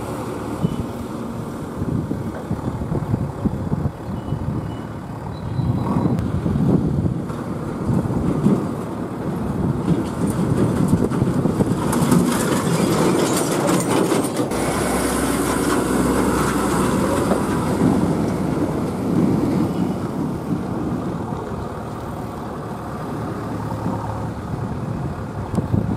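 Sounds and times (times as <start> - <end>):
lorries driving past: 0.0 - 25.9
rattling clatter: 9.8 - 14.6.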